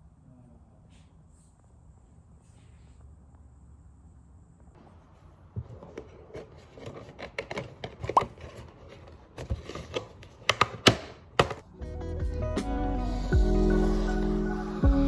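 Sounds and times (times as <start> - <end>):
music: 11.6 - 15.0.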